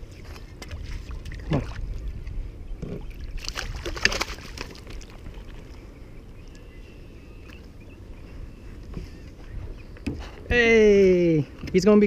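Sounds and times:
water splashes and knocks: 0.0 - 2.0, 2.8 - 5.6
rush of wind and water: 0.0 - 12.0.

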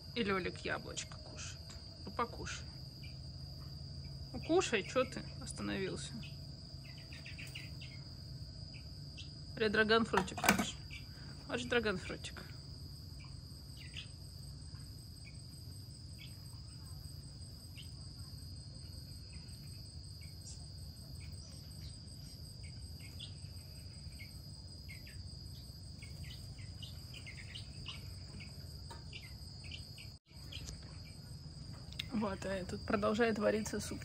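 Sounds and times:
high-pitched insect trill: 0.0 - 34.0.

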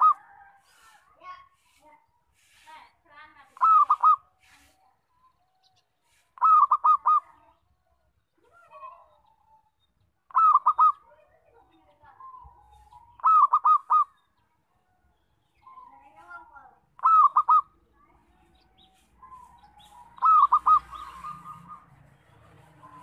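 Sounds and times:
dove singing hooked notes: 3.4 - 4.8, 5.6 - 7.5, 8.6 - 14.4, 15.4 - 23.0
soft dove cooing: 3.6 - 4.2, 6.4 - 7.2, 10.3 - 11.0, 12.8 - 14.1, 17.0 - 17.8, 19.2 - 21.9.

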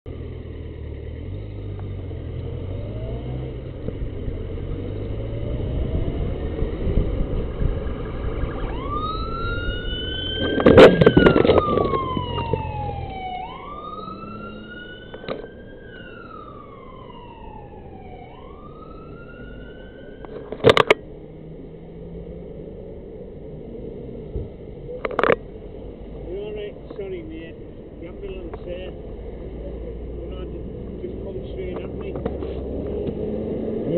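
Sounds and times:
motorcycle engine and road noise: 0.1 - 33.9
ambulance siren wailing: 5.1 - 21.0
motorcycle crashing into car: 10.4 - 12.2.

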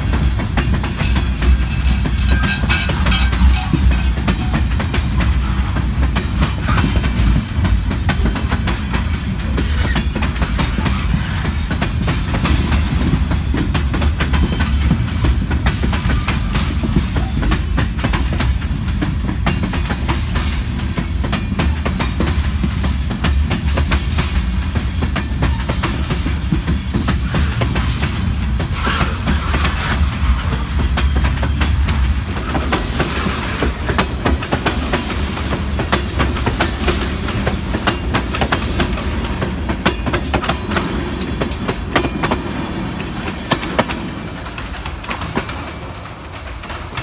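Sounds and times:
train wheels rumbling on rails: 0.0 - 47.0
wheels clacking on track: 0.0 - 47.0.

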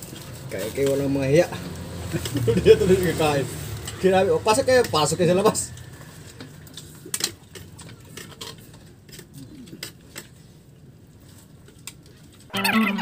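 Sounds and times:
loud pitched held tones: 12.5 - 13.0.

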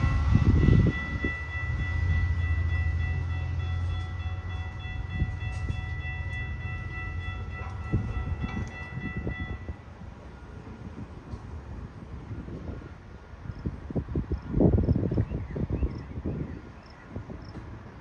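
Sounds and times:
high ringing tones: 0.0 - 10.6
diesel locomotive engine rumble: 0.0 - 18.0.

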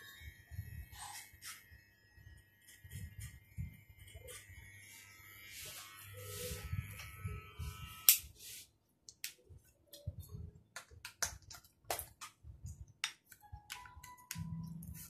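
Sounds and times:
barber's tools clicking and snipping: 8.0 - 8.3.

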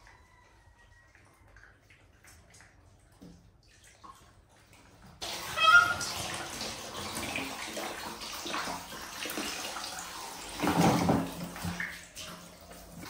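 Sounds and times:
water splashing in a bath: 0.0 - 13.0.

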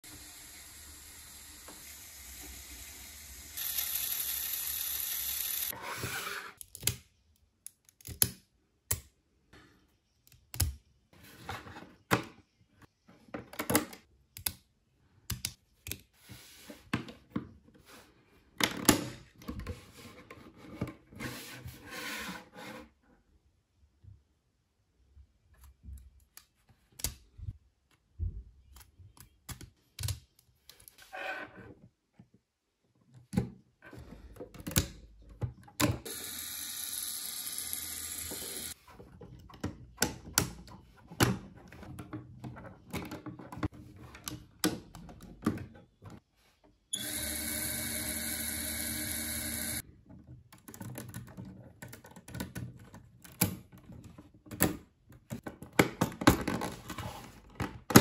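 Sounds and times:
small electric motor running: 0.0 - 5.7, 36.1 - 38.8, 47.0 - 49.8
plastic pieces clicking together: 7.7 - 9.1.

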